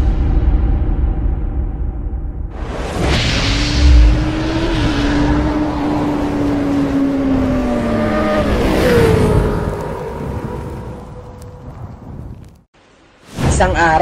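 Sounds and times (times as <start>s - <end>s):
deep hit: 0.0s - 4.5s
motorcycle engine revving: 2.6s - 11.5s.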